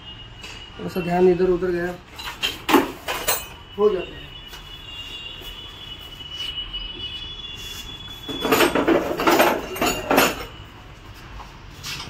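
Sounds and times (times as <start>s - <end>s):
metal tools clattering: 2.1s - 3.6s, 8.3s - 10.6s.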